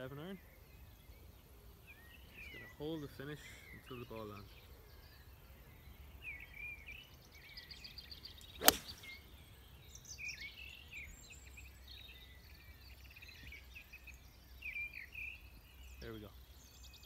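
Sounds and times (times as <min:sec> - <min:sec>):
birds chirping faintly: 0:00.0 - 0:17.0
golf club striking ball: 0:08.6 - 0:09.2.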